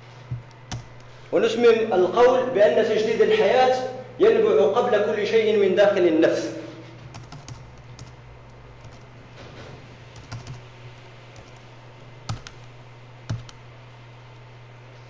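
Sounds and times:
steady low hum: 0.0 - 15.0
sharp clicks: 13.3 - 13.6.

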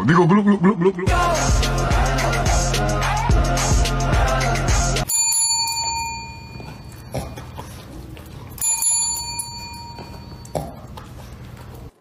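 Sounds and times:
desk service bell ringing: 5.0 - 7.1, 8.6 - 10.5.

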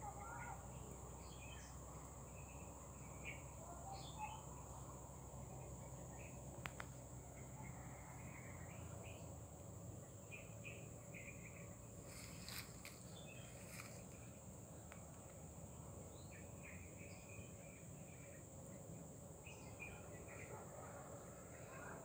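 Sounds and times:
faint clicks: 6.6 - 7.0, 14.8 - 15.4.

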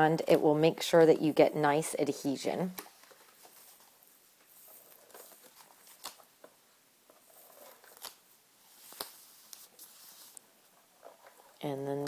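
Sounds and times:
tape peeling onto paper: 4.4 - 6.3, 7.4 - 10.4.

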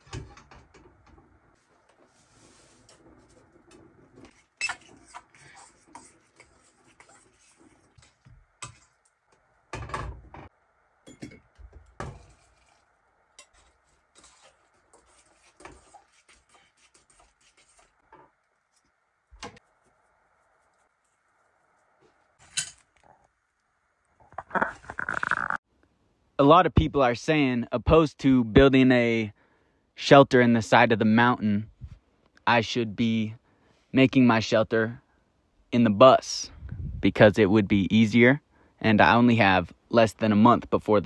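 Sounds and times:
metal cookware clinks and scrapes: 13.4 - 16.7, 22.4 - 22.9.

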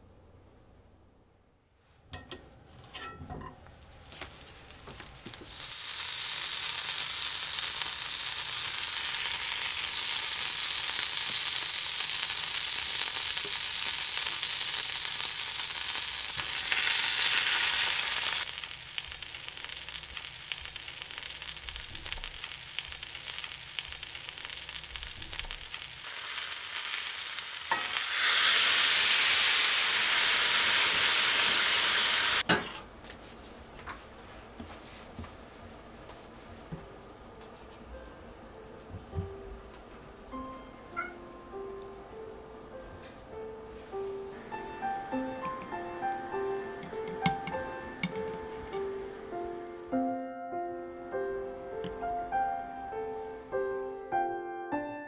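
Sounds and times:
fish frying in a skillet: 4.8 - 32.4.

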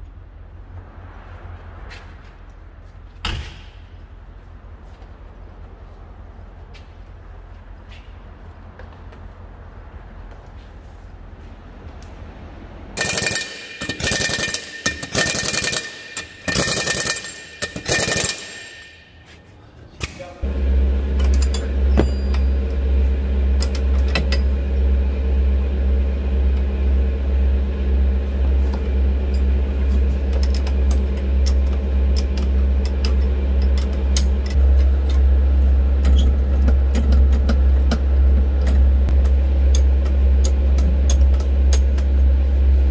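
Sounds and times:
impact wrench bursts: 13.0 - 18.8
pulsing machine drone: 20.4 - 42.9.

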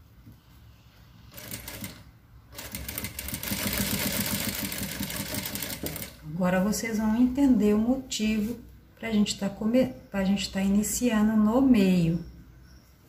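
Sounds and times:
sewing machine stitching: 1.3 - 6.2.

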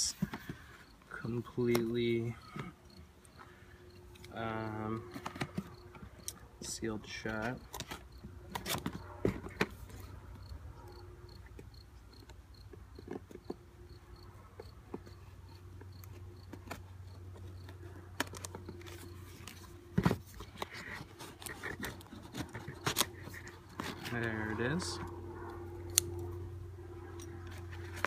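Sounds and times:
insect chirping: 2.0 - 6.4, 10.0 - 17.7
cardboard being handled: 16.1 - 25.1
scissors cutting cardboard: 16.4 - 25.1.

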